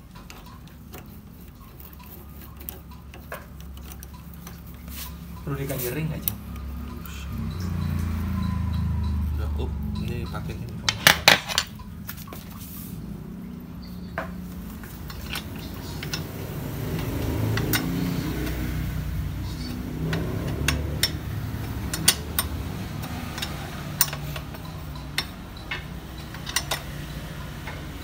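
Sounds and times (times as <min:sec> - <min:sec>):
wrench clicking on metal bolt: 0:15.0 - 0:27.1.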